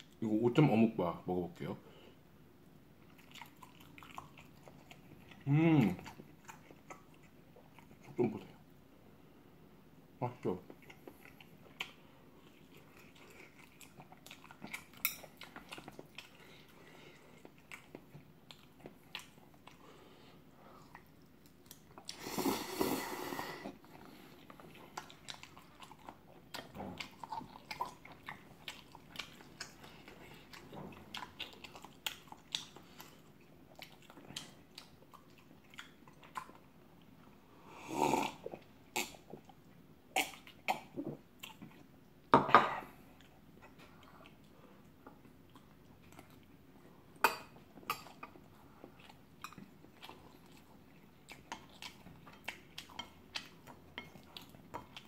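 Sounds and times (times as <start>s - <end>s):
chewing with wet mouth clicks: 3.0s - 8.5s, 10.4s - 19.9s, 20.8s - 22.2s, 23.8s - 37.4s, 38.5s - 42.0s, 43.2s - 46.6s, 47.2s - 55.0s
slurping noodles: 22.1s - 23.8s.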